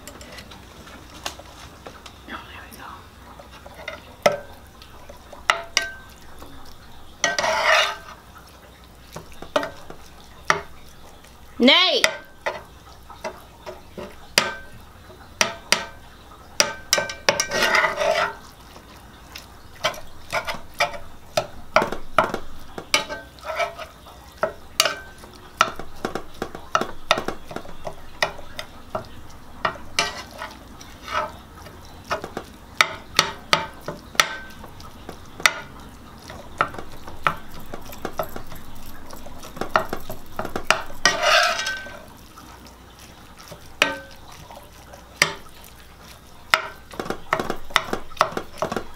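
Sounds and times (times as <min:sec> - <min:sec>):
fork scraping skillet: 0:00.0 - 0:01.6, 0:03.3 - 0:48.9
fork tapping on skillet: 0:03.6 - 0:08.2, 0:09.1 - 0:16.0, 0:16.6 - 0:18.4, 0:19.4 - 0:42.1, 0:43.5 - 0:48.9.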